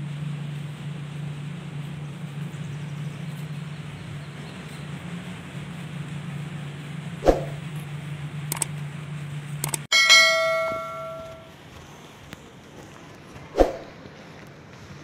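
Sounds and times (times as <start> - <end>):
steady low hum: 0.0 - 15.0
faint clicks: 8.5 - 8.8, 9.6 - 9.9
bell ding: 9.9 - 11.5.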